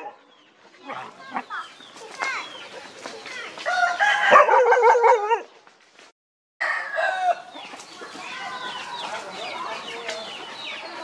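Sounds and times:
rooster crowing: 3.6s - 5.2s, 6.6s - 7.5s.

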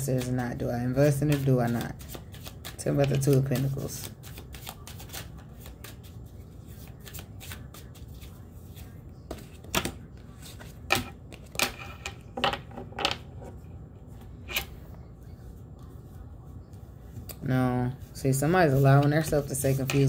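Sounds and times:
cards shuffled by hand: 0.0s - 11.6s.

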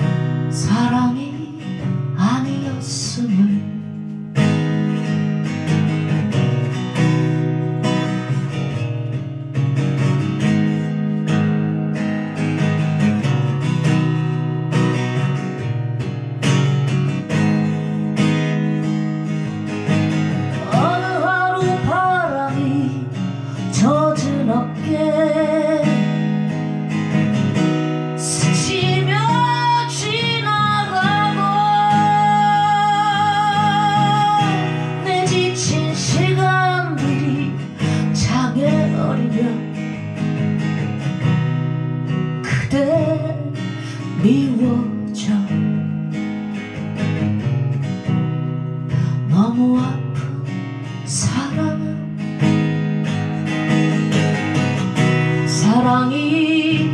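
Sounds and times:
woman singing: 0.0s - 4.7s, 20.2s - 27.0s, 28.0s - 40.6s, 42.1s - 46.5s, 48.9s - 52.9s, 54.1s - 56.9s
acoustic guitar strumming: 0.0s - 56.9s.

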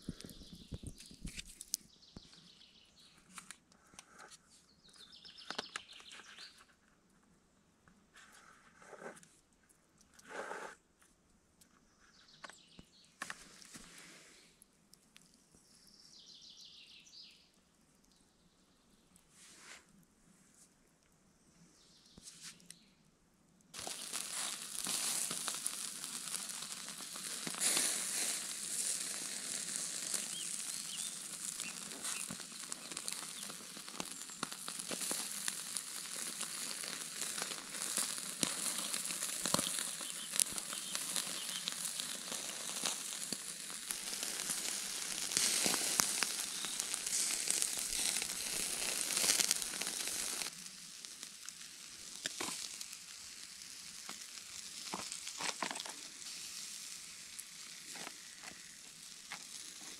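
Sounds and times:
food sizzling in a pan: 23.8s - 59.9s.

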